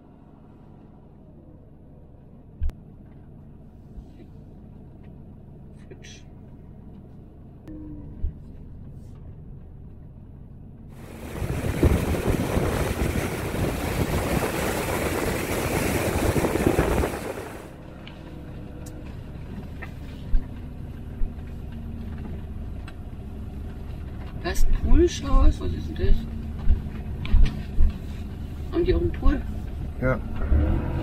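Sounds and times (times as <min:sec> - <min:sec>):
motorhome driving rumble: 0:00.0 - 0:31.0
surf breaking on sandy beach: 0:11.0 - 0:17.7
wind buffeting microphone: 0:11.0 - 0:17.7.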